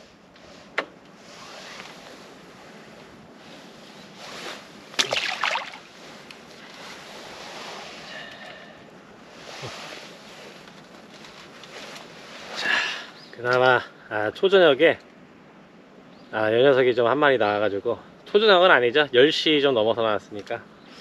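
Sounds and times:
faint outdoor background: 0.0s - 21.0s
splash in water: 5.0s - 6.0s.

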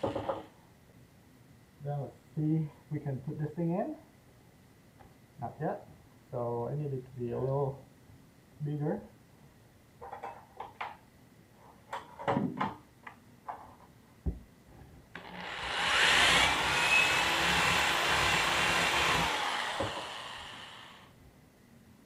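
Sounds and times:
cordless drill boring into ceiling: 15.2s - 21.1s.

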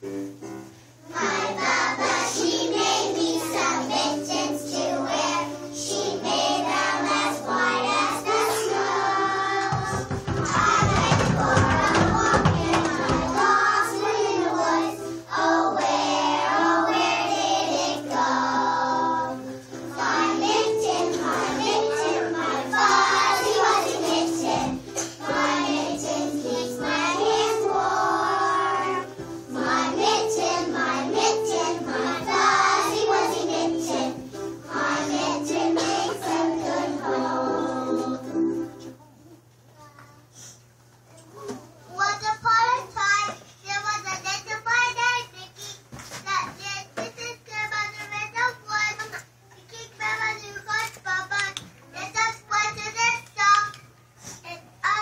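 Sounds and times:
musical accompaniment: 0.0s - 39.0s
children singing in unison: 1.1s - 38.3s.

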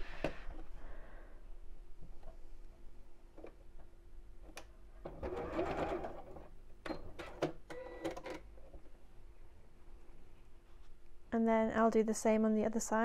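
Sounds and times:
sewing machine running: 5.1s - 6.5s.

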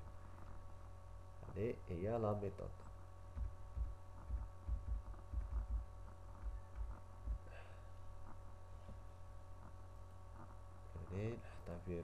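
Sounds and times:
low electrical hum: 0.0s - 12.0s
computer keyboard keys thumping: 3.3s - 7.4s.

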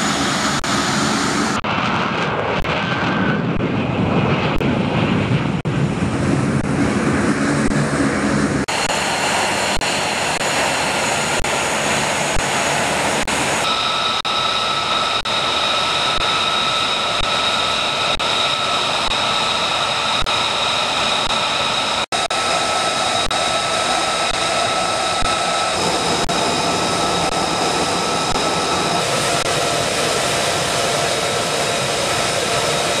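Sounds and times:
jet engine: 0.0s - 33.0s.

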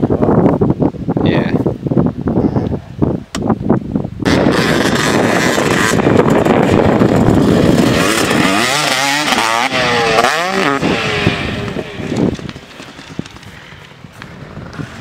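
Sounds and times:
dirt bike engine revving: 4.2s - 15.0s.

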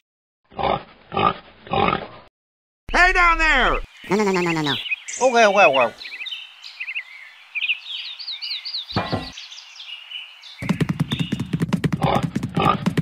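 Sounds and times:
pig grunting: 0.5s - 2.3s, 12.0s - 13.0s
birds chirping: 2.9s - 13.0s
steady outdoor hiss: 3.0s - 10.9s.

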